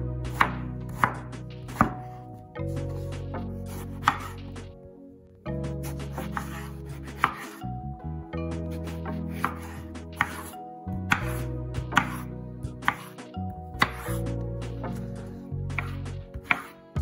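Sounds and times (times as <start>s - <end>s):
background music: 0.0s - 17.0s
knife chopping on cutting board: 0.3s - 2.2s, 3.7s - 4.4s, 5.9s - 7.6s, 9.3s - 13.2s, 13.8s - 14.2s, 15.7s - 16.8s.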